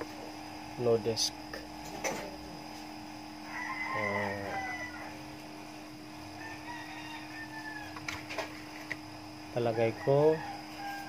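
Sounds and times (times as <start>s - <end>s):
electrical hum: 0.0s - 11.0s
rooster crowing: 3.4s - 5.4s, 6.2s - 8.3s, 9.6s - 11.0s.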